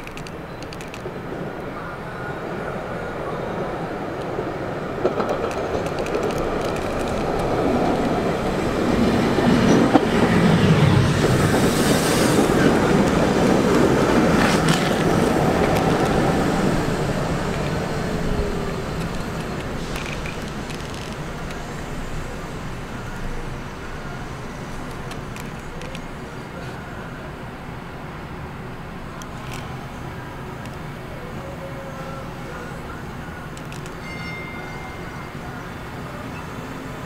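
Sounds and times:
light rail car passing: 0:00.0 - 0:37.0
wheels clacking over rail joints: 0:04.2 - 0:11.8, 0:12.4 - 0:22.0.

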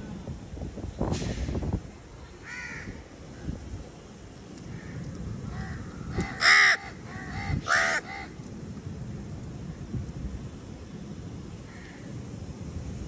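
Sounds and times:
crows cawing: 0:02.4 - 0:03.0, 0:04.7 - 0:08.4, 0:11.7 - 0:12.0.

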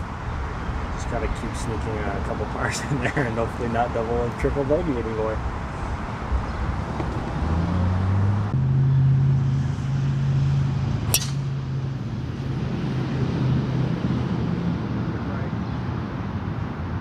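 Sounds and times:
golf club striking ball: 0:11.1 - 0:11.6.

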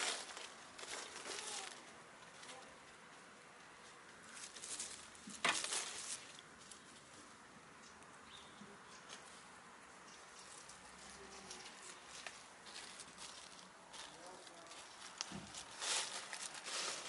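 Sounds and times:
hen scratching in dry leaves: 0:00.0 - 0:02.7, 0:04.2 - 0:07.2, 0:10.4 - 0:17.0.

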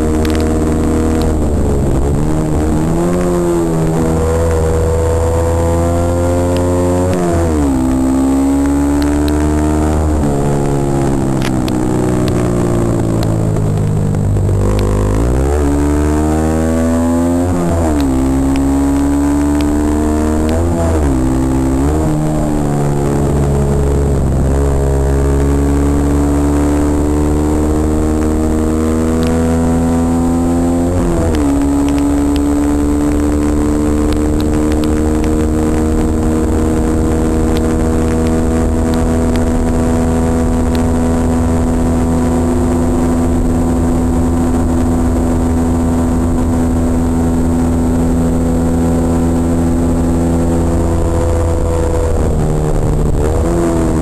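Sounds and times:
motorcycle engine running hard: 0:00.0 - 0:54.0
wind rushing over microphone: 0:00.0 - 0:54.0.

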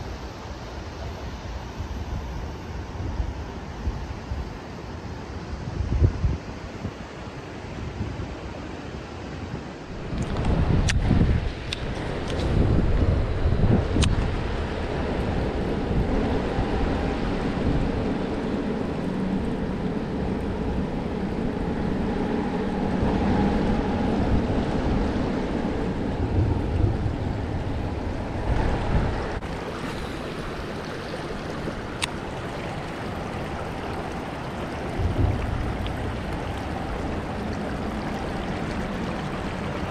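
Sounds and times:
wind gusting on microphone: 0:00.0 - 0:39.9
river water rushing over rocks: 0:25.8 - 0:39.9.

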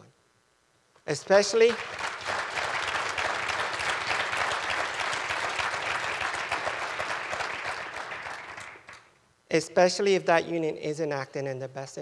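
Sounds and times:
audience applauding: 0:01.3 - 0:09.1.

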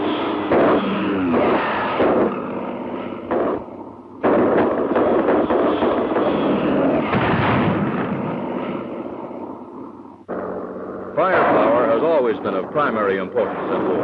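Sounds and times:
cannon and machine-gun fire: 0:00.1 - 0:14.0
shell blasts: 0:00.3 - 0:10.7.

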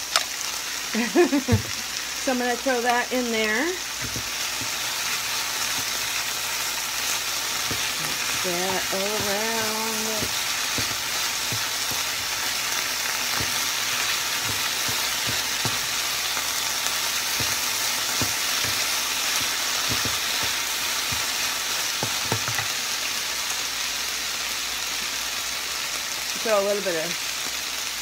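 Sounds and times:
food sizzling in frying pan: 0:00.0 - 0:28.0
spatula scraping pan: 0:03.4 - 0:22.8.

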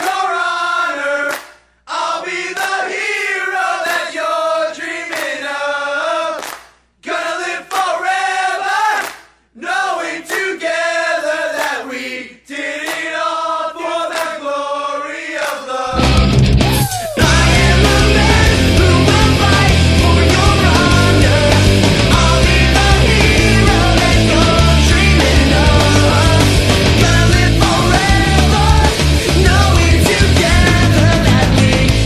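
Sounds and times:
voices singing: 0:00.0 - 0:32.0
loud rock band: 0:15.9 - 0:32.0.

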